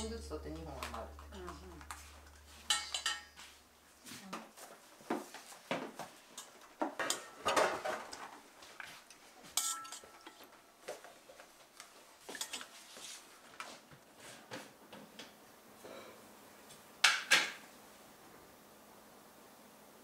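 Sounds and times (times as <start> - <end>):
utensils clinking against steel pots: 2.5 - 3.5, 6.4 - 7.9, 9.5 - 10.5, 12.3 - 12.7.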